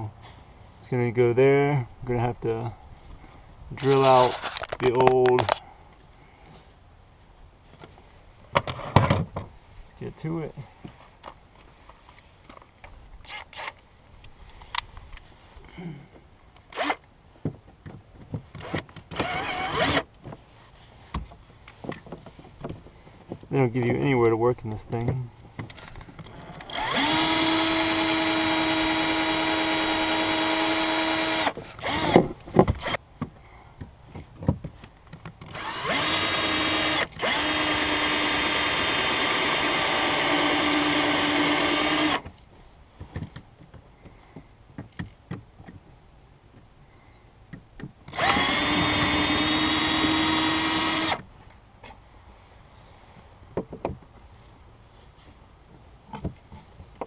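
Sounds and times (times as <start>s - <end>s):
cordless drill whining: 16.7s - 17.1s, 18.6s - 20.1s, 26.2s - 32.2s, 35.4s - 42.2s, 48.1s - 51.2s.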